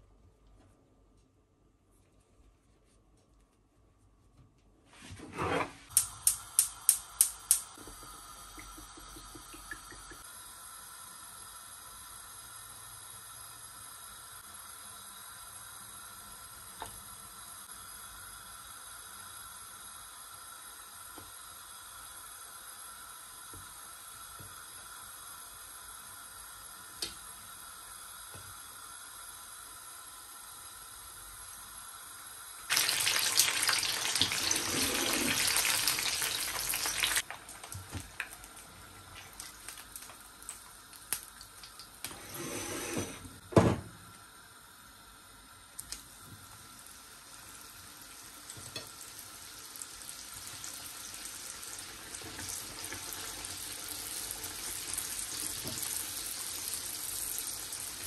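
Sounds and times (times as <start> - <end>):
spring rolls sizzling in oil: 10.2 - 42.0, 45.4 - 58.0.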